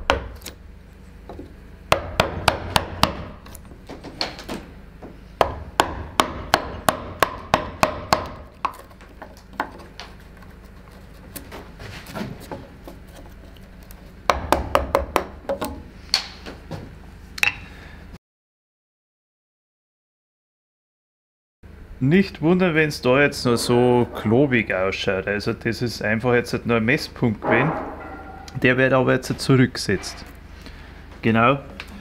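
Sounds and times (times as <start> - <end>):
mallet striking carving gouge: 1.9 - 3.6, 5.4 - 11.0, 14.3 - 15.8.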